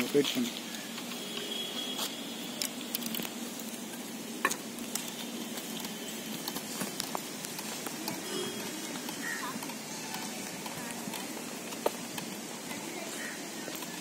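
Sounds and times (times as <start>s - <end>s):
background hiss: 0.0s - 14.0s.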